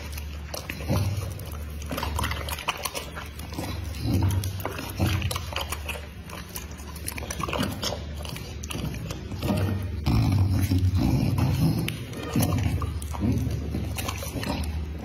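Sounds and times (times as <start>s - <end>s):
dog chewing raw meat: 0.0s - 15.0s.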